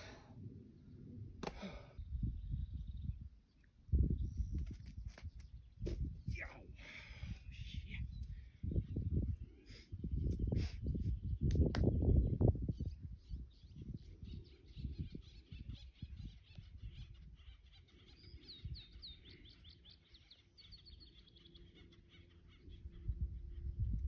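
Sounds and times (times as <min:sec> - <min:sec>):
songbirds chirping: 0:00.5 - 0:24.0.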